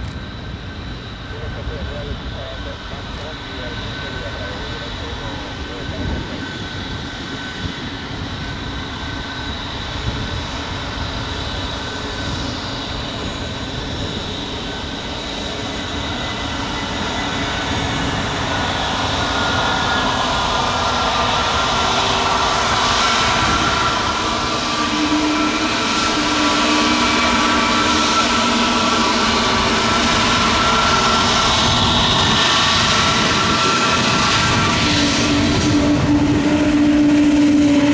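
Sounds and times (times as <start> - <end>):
jet engines rushing: 0.0 - 37.9
whining jet engine tones: 0.0 - 37.9.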